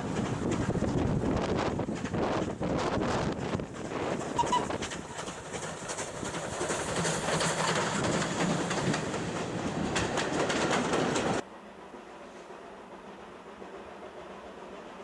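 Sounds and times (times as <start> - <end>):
wheels clicking over rail joints: 0.0 - 11.4
train passing: 0.0 - 15.0.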